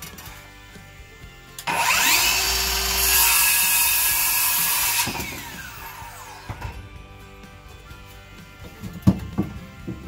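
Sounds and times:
saw cutting wooden board: 0.0s - 7.0s
circular saw whining: 1.6s - 6.9s.

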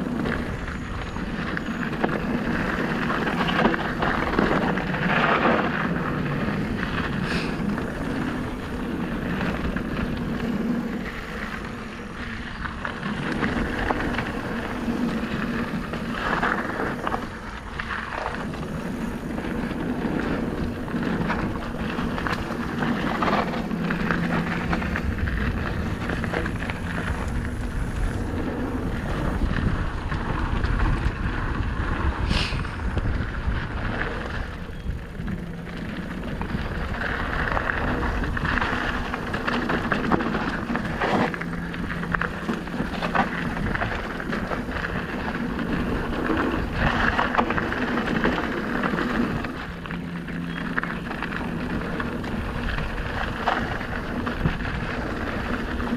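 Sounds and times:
bike rattling over bumps: 0.0s - 55.9s
tyres crunching over gravel: 0.0s - 55.9s
wind buffeting microphone: 0.0s - 55.9s.

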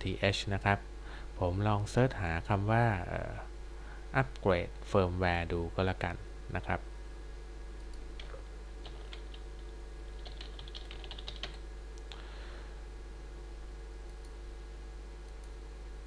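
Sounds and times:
low electrical hum: 0.0s - 16.0s
keyboard keys clicking: 10.2s - 11.6s.

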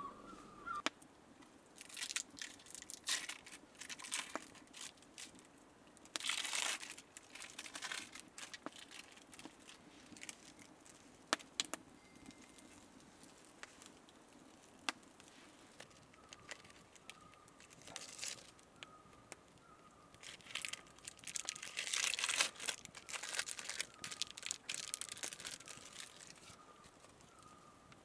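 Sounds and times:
faint high chirp: 0.0s - 0.8s, 11.9s - 12.8s
plastic wrapper crinkling: 1.8s - 18.7s, 20.1s - 27.6s.

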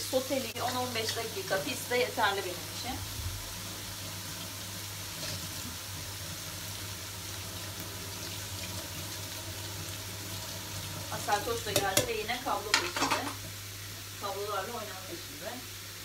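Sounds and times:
foam tray rinsed under water: 0.0s - 13.3s
tap running into metal sink: 11.7s - 12.1s.

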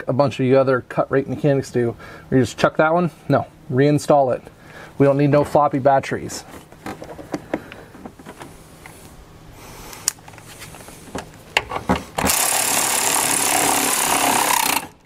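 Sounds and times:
cordless power ratchet running: 12.2s - 15.0s.

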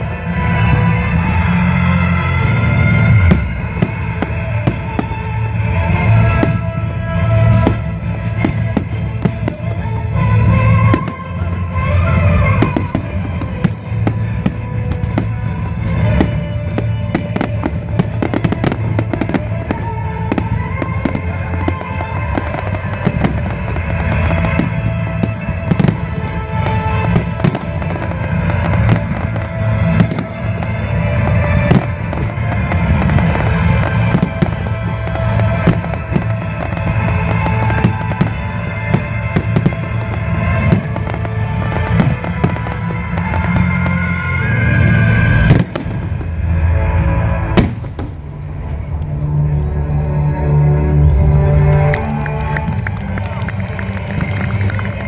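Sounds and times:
fireworks bursting: 0.0s - 49.6s
music: 0.0s - 55.0s.

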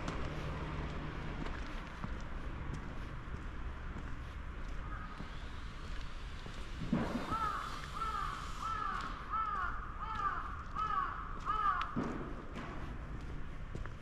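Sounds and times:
crow cawing: 4.8s - 5.2s, 7.2s - 12.0s.

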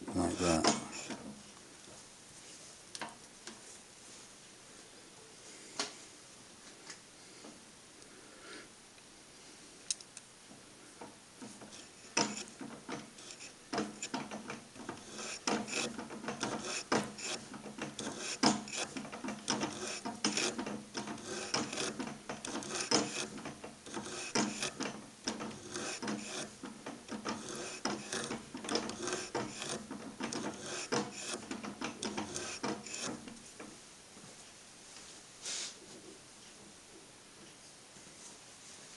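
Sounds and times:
cutter scraping aluminium: 0.1s - 1.2s, 11.5s - 33.4s.

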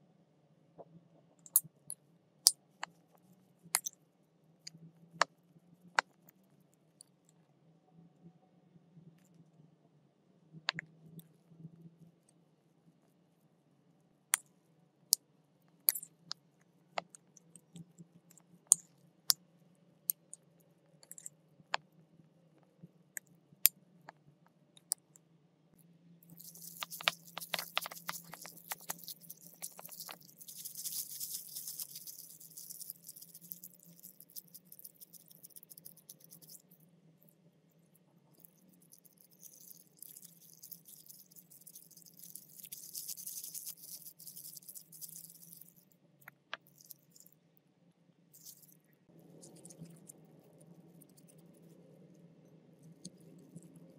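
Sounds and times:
plastic gloves crinkling: 26.4s - 34.5s, 39.4s - 45.8s.

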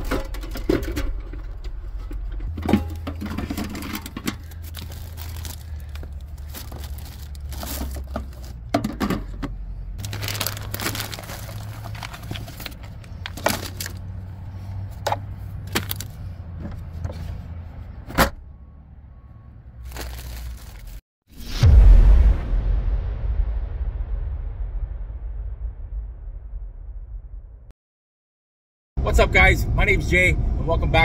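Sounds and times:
cans and bottles clinking: 0.0s - 14.0s.

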